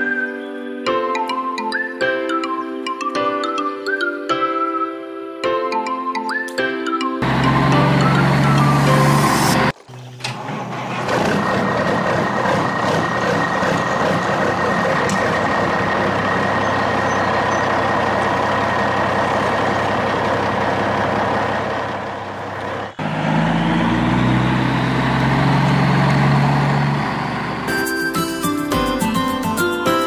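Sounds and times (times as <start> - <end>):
background music: 0.0 - 9.7, 27.7 - 30.0
truck engine running: 7.2 - 29.6.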